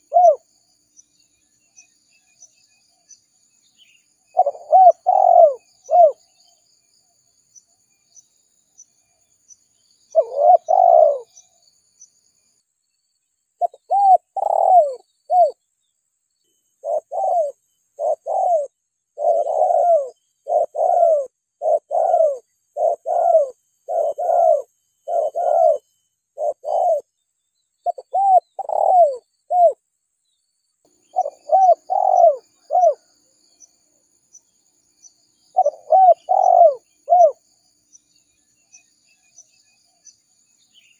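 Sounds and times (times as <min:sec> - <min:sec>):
dove cooing: 0:00.0 - 0:00.4, 0:04.3 - 0:06.2, 0:10.1 - 0:11.5, 0:13.6 - 0:15.6, 0:16.8 - 0:25.8, 0:26.4 - 0:27.1, 0:27.8 - 0:29.8, 0:31.1 - 0:33.1, 0:35.5 - 0:37.4.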